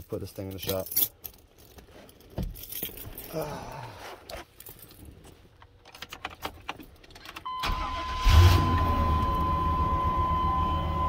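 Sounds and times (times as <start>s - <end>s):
keys jingling in ignition: 0.0s - 3.5s, 4.3s - 8.1s
truck engine starting and running: 7.3s - 11.0s
steady high tone: 7.6s - 11.0s.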